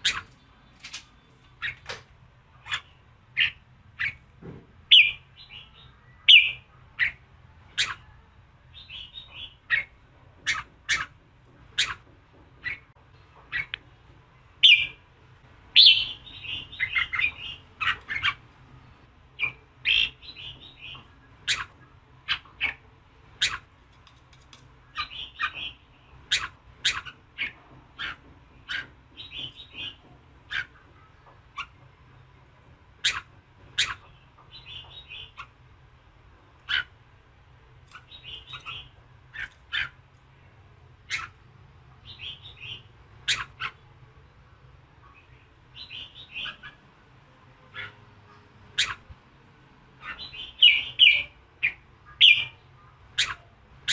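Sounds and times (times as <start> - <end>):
bulbul singing: 0.0 - 4.2, 4.9 - 8.1, 14.6 - 15.0, 15.7 - 18.4, 19.4 - 23.7, 37.9 - 39.9, 42.0 - 43.9, 45.0 - 46.8, 48.6 - 49.1, 50.0 - 53.9.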